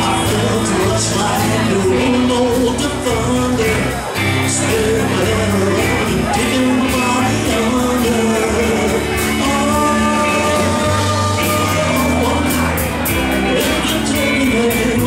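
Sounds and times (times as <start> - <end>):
man singing lead: 0.0 - 15.0
rock band playing: 0.0 - 15.0.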